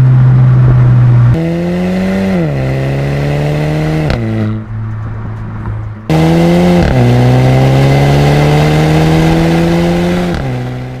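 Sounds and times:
car engine accelerating: 0:00.0 - 0:11.0.

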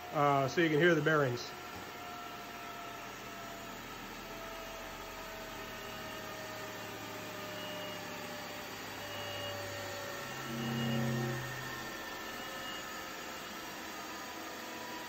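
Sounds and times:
grinding wheel whirring down: 0:05.4 - 0:15.0
deep hum: 0:09.0 - 0:13.0.

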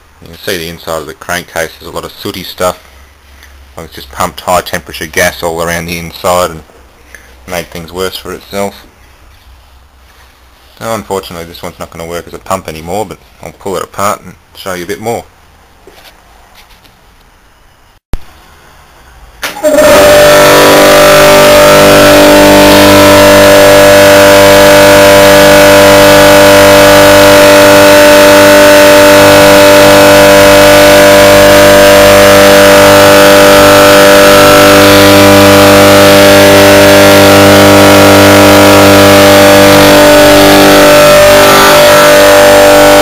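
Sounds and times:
compressor humming: 0:18.2 - 0:43.0.

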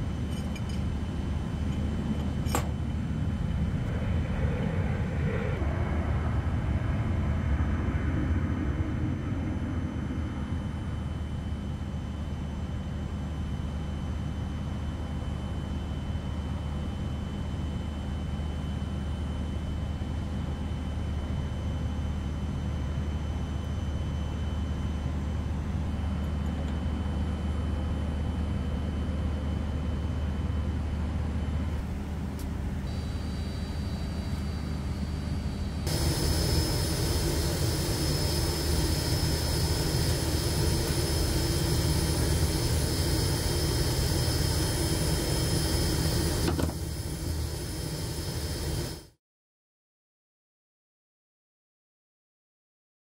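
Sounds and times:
machinery droning hum: 0:00.0 - 0:49.1
faint high whining: 0:32.8 - 0:49.1.

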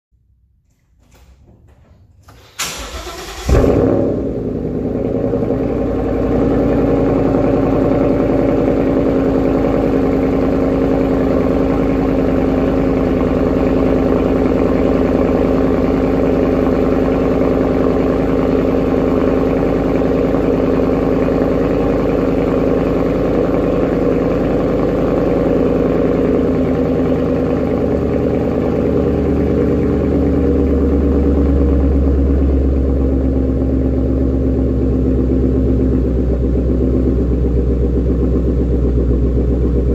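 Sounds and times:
car engine starting and idling: 0:00.2 - 0:39.9.

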